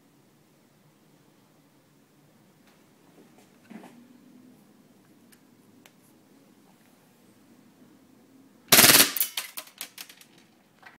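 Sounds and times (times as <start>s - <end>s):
airsoft pistol shots: 8.7s - 9.6s.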